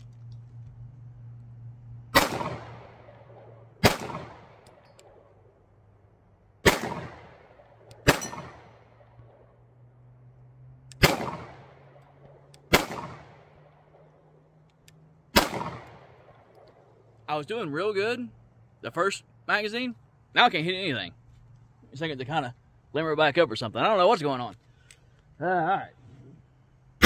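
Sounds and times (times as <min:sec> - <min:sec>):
pistol shots echoing: 0:02.1 - 0:05.3, 0:06.6 - 0:09.1, 0:11.0 - 0:12.0, 0:12.7 - 0:14.1, 0:15.3 - 0:16.6.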